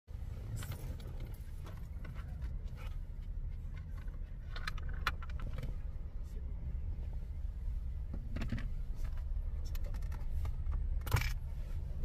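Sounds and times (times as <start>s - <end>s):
clicks of handling in car cabin: 0.5s - 5.9s, 8.1s - 11.4s.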